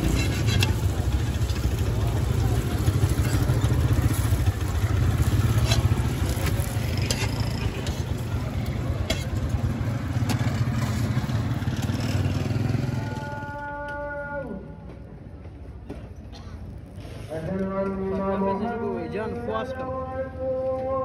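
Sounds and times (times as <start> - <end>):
metal clinks and scrapes: 0.0 - 1.0
vehicle engine idling: 0.0 - 13.7.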